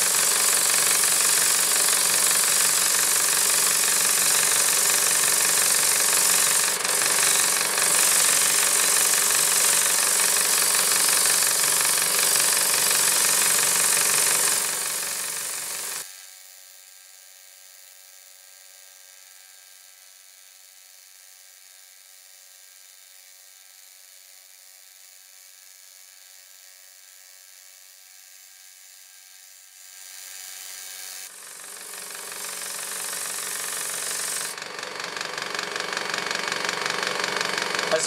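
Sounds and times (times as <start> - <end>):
high-pitched machine hum: 0.0 - 16.3, 30.0 - 38.0.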